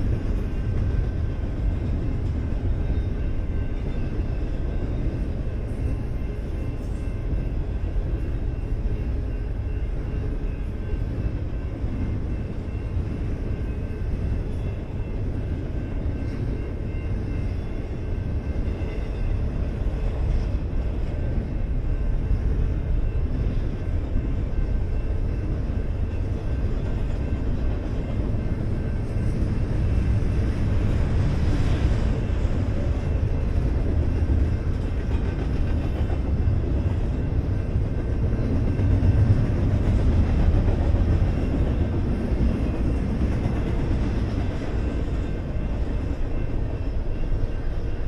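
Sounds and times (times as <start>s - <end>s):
crossing bell ringing: 0.0s - 48.0s
freight train rumbling past: 0.0s - 48.0s.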